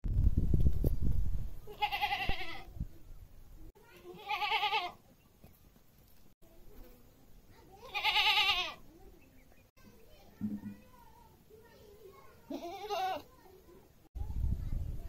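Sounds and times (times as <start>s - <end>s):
goats bleating: 1.7s - 2.7s, 4.1s - 5.0s, 7.8s - 8.8s, 12.5s - 13.3s.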